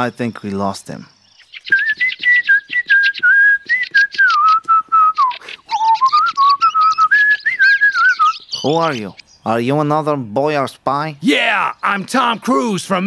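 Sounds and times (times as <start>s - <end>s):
man whistling a tune: 1.7s - 8.4s.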